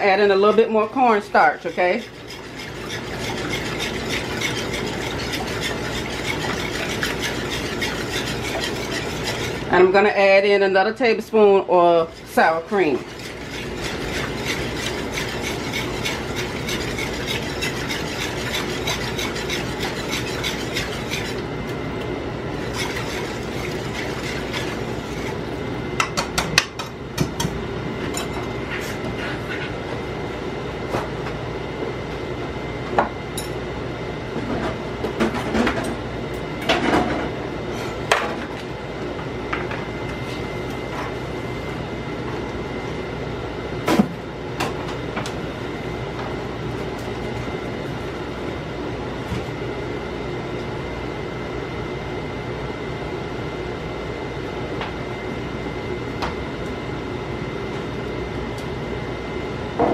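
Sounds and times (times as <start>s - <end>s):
steady hum: 0.0s - 59.9s
utensil stirring sauce in a pan: 0.3s - 9.7s, 12.0s - 21.5s, 22.5s - 25.6s.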